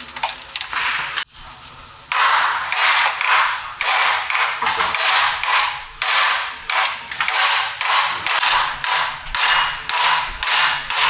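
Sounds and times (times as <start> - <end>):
hammer striking metal: 2.1 - 11.0.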